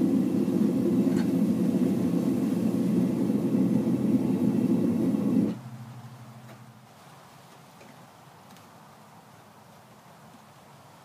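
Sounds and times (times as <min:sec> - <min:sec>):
gas burner rushing: 0:00.0 - 0:05.6.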